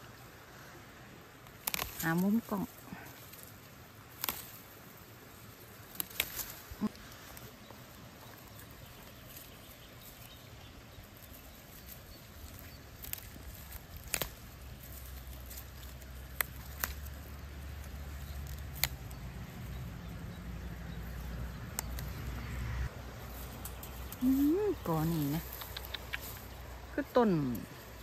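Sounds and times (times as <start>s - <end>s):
rustling in undergrowth: 0.0s - 28.0s
sharp twig snaps: 1.4s - 2.3s, 4.1s - 4.6s, 5.9s - 6.7s, 12.5s - 19.4s, 21.7s - 22.2s.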